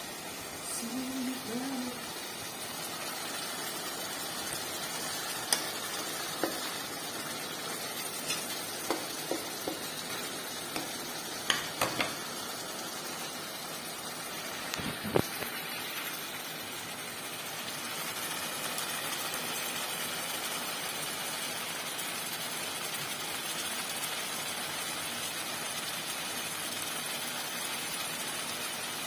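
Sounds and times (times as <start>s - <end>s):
vegetables sizzling in a pot: 0.0s - 29.0s.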